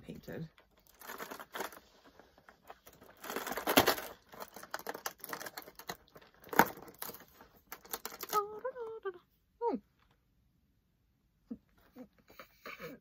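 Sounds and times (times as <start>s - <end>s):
cardboard crinkling and tearing: 0.7s - 8.5s.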